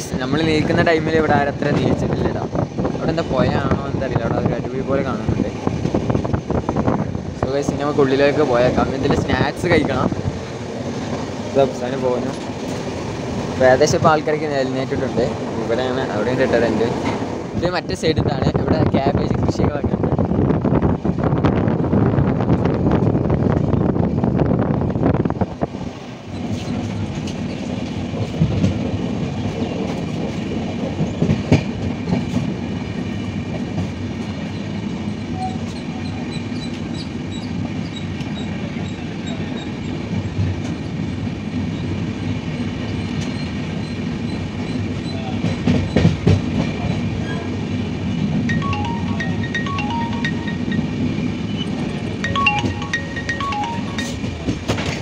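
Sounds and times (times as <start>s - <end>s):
train rumbling on rails: 0.0s - 55.0s
train wheels clacking: 26.3s - 41.0s, 42.8s - 47.4s, 50.7s - 55.0s.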